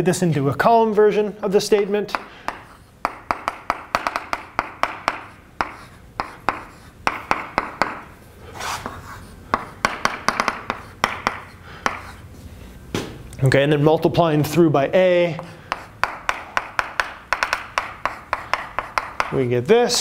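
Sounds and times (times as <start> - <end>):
chalk tapping on blackboard: 1.7 - 12.2, 15.3 - 19.4
chalk scratching on blackboard: 1.7 - 12.3, 15.3 - 19.3.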